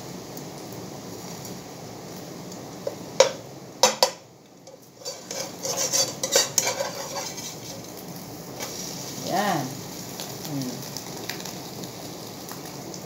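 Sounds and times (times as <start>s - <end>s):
metal spatula clinking on frying pan: 5.0s - 7.6s.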